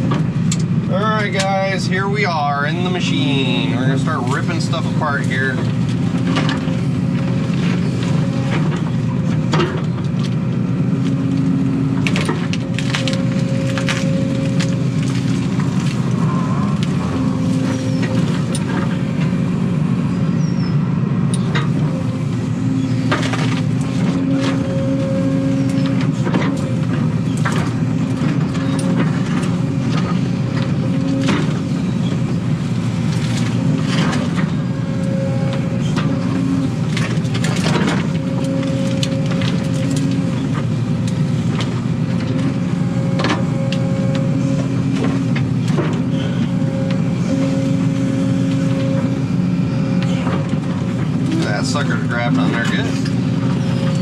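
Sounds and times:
excavator diesel engine under load: 0.0s - 54.0s
hydraulic whine: 0.0s - 54.0s
branches and roots snapping: 9.8s - 18.8s, 35.0s - 45.8s.

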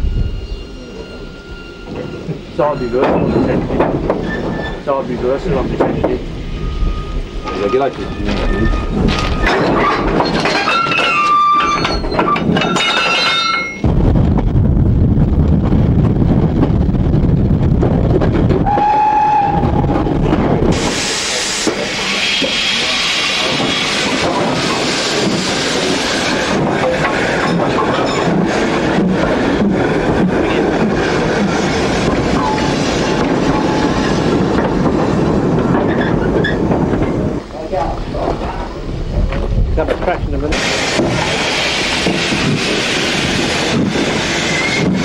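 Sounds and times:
steam train rumbling on track: 0.0s - 45.0s
wagons clanking and knocking: 1.9s - 6.2s, 7.4s - 13.8s, 23.4s - 42.8s
train whistle: 18.6s - 19.8s
loud steam hiss: 18.8s - 36.7s, 37.3s - 45.0s.

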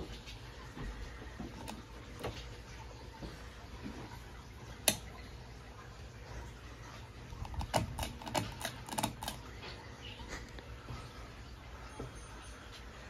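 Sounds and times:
ceiling fan humming: 0.0s - 13.0s
clicks and taps: 4.8s - 5.1s, 7.4s - 9.7s.

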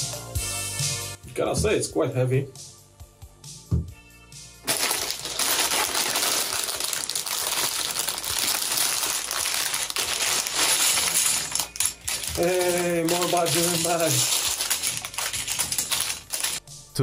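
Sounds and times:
plastic bags crinkling: 4.6s - 16.6s
plastic bricks clattering: 4.7s - 16.6s.

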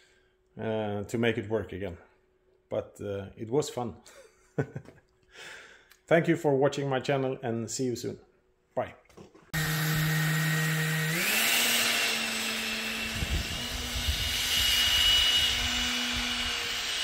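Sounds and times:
electric fan whine: 9.6s - 17.0s.

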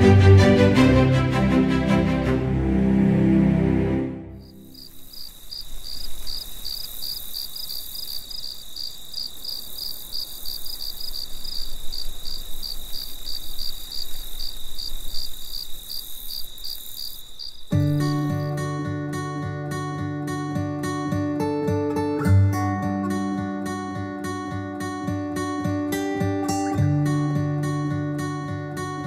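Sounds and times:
crickets chirping: 4.4s - 20.4s.

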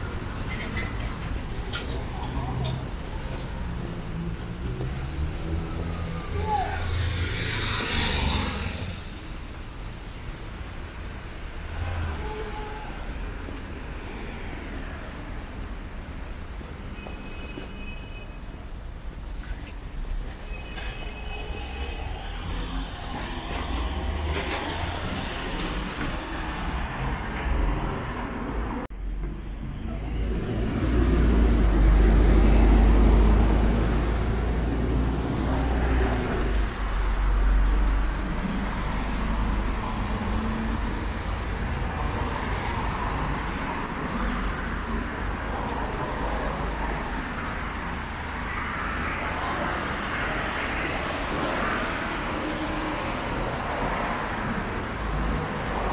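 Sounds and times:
cars passing: 0.0s - 17.7s, 18.4s - 55.9s.

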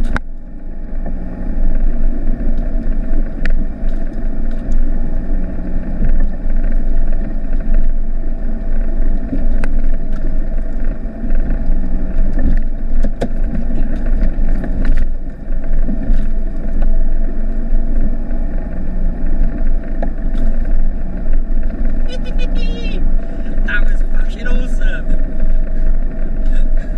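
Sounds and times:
body and suspension rattles: 0.0s - 26.9s
diesel engine from inside cab: 0.0s - 26.9s.

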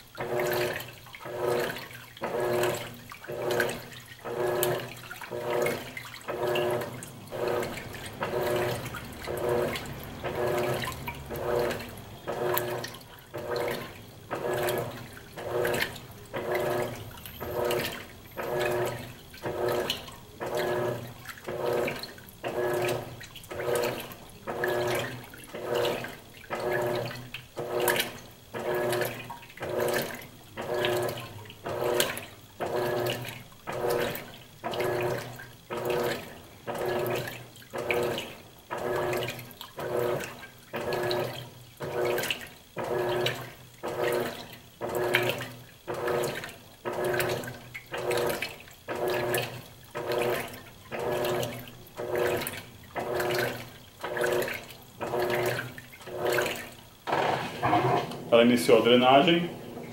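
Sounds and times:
washing machine agitating water: 0.0s - 59.9s.

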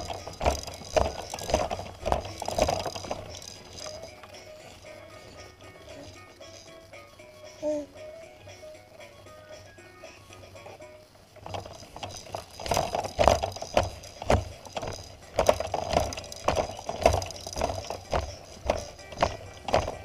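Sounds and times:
baby bouncer rattling and knocking: 0.0s - 6.8s, 11.4s - 20.0s.

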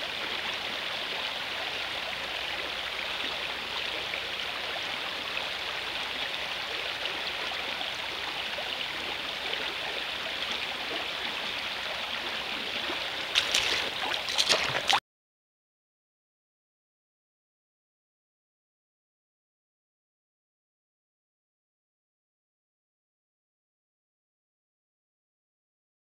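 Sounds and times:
river running over stones: 0.0s - 15.0s.

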